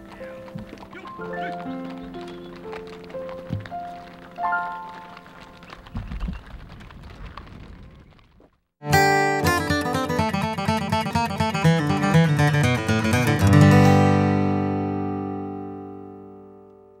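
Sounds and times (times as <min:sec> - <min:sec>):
plucked string music: 0:08.8 - 0:17.0.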